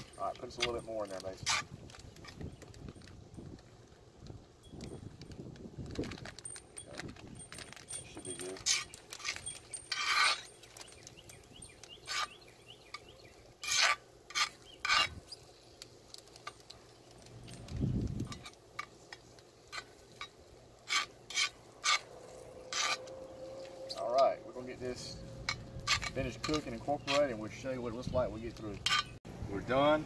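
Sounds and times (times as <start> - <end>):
metal utensil scraping griddle: 8.2 - 12.4, 13.6 - 15.4, 18.2 - 28.0, 28.6 - 29.2.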